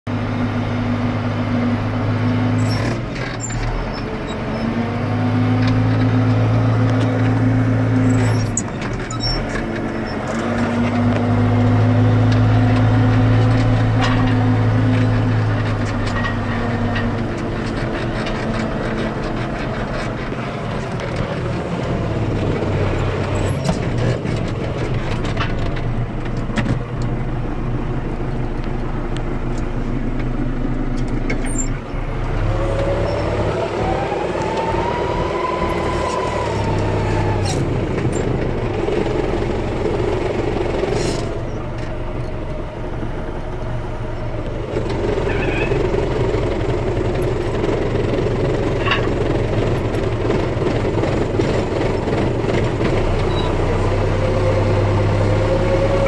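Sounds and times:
tractor diesel engine in cab: 0.0 - 56.0
sharp knocks and rattles: 12.3 - 27.2, 44.7 - 53.6.

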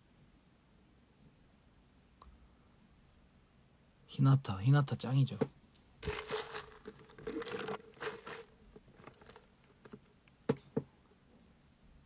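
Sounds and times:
plastic cup crinkling: 6.0 - 10.1.

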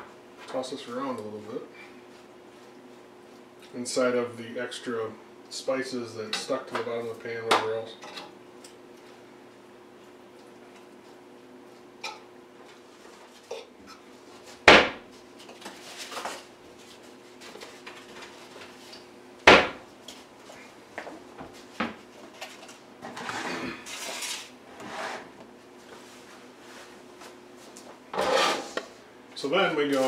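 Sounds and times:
sharp loud knocks: 14.7 - 15.0, 19.5 - 19.8
utensil scraping metal skillet: 28.2 - 28.8.

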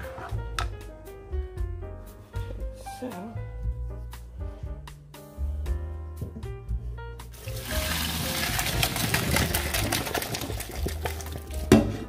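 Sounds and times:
background music: 0.0 - 12.0
water pouring into colander: 7.4 - 11.7.

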